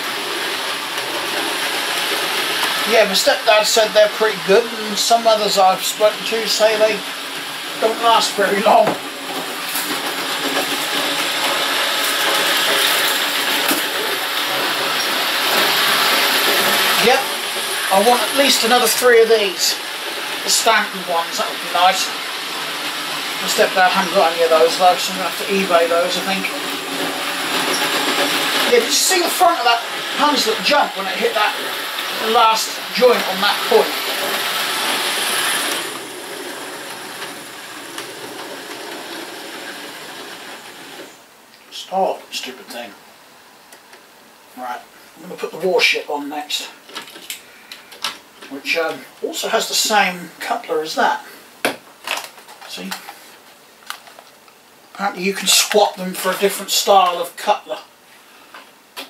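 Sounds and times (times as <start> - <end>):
model train motor whirring: 0.0 - 41.2
wheel clatter: 7.7 - 41.2.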